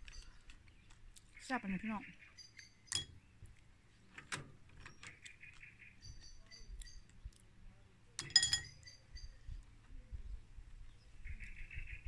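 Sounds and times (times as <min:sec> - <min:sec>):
shells clinking in a ceramic bowl: 0:08.2 - 0:09.1.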